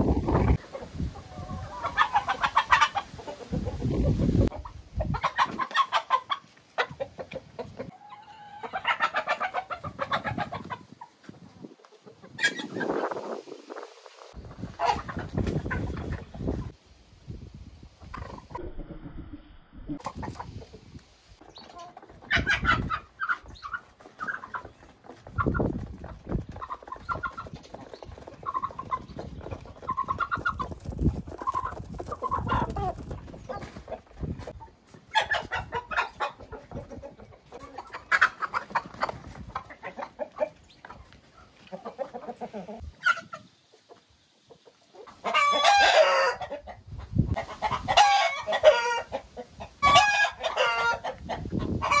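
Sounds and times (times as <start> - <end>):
chickens clucking: 0.0 - 16.8, 18.0 - 19.1, 19.8 - 52.0
roosters crowing: 45.3 - 46.6, 47.6 - 49.1, 49.8 - 51.2.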